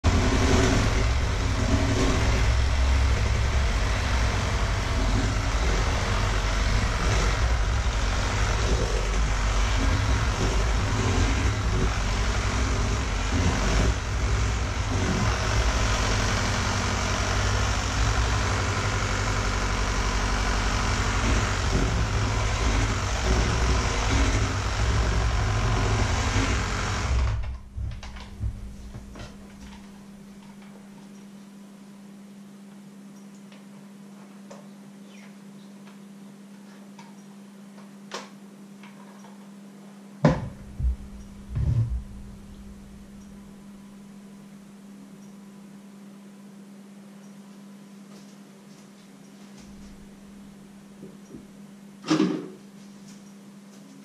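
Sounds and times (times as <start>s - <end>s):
electric hand mixer running: 0.0s - 27.4s.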